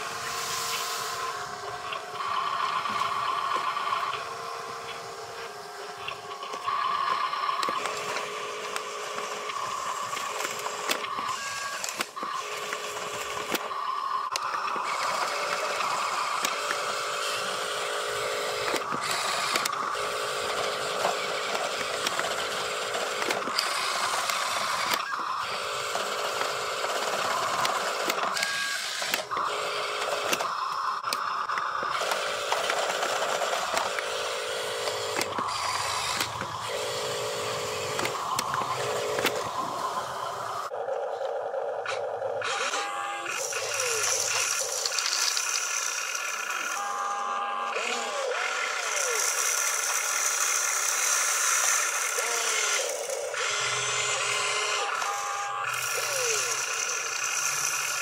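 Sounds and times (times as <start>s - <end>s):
small electric motor whining: 0.0s - 58.0s.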